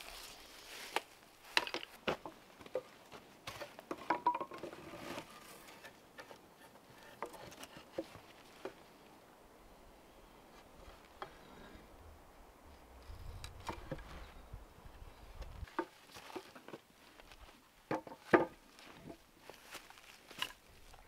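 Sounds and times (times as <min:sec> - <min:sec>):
wood knocking on wood: 0:03.5 - 0:04.7, 0:17.9 - 0:18.6.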